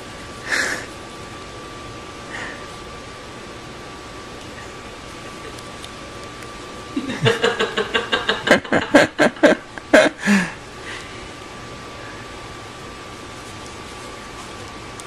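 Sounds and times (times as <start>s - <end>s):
person laughing: 6.9s - 10.6s.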